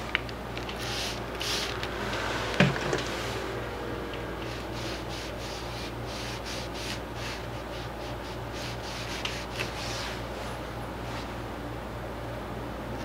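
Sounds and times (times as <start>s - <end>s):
tissue dabbing on paper: 0.8s - 1.8s, 4.4s - 10.6s.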